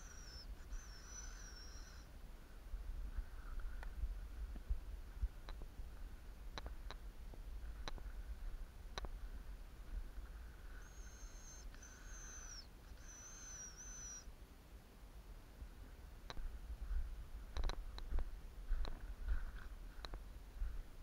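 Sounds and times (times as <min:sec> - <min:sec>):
thin high whistle: 0:00.0 - 0:02.1, 0:10.8 - 0:14.3.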